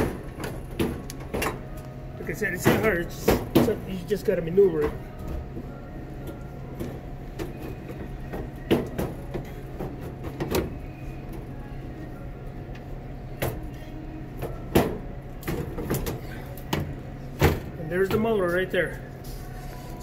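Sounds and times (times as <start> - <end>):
steady low hum: 0.0 - 20.0
knocks and clunks of conveyor parts: 2.4 - 4.0.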